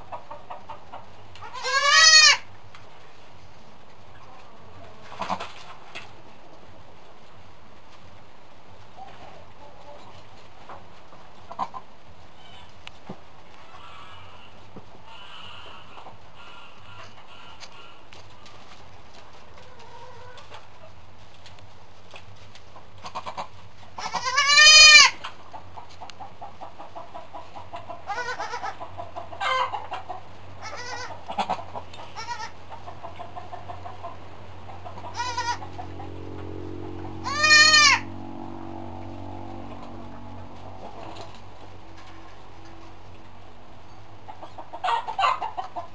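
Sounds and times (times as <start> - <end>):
goats bleating: 1.4 - 2.5, 24.0 - 25.2, 28.1 - 28.8, 30.6 - 31.1, 32.2 - 32.6, 35.1 - 35.7, 37.2 - 38.1.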